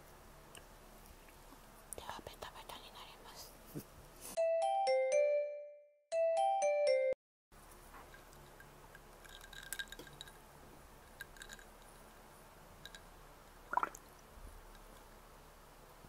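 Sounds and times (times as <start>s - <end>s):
small objects clicking and tapping: 7.7s - 10.4s, 11.0s - 12.1s.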